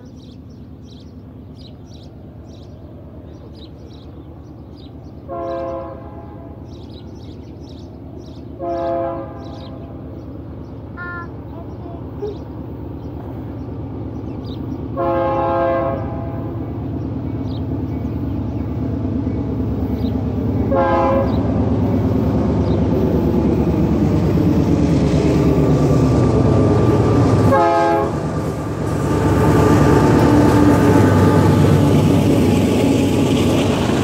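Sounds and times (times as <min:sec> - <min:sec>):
locomotive horn blasts: 0:05.3 - 0:06.6, 0:08.6 - 0:09.8, 0:15.0 - 0:16.5, 0:20.7 - 0:21.4, 0:27.5 - 0:28.2.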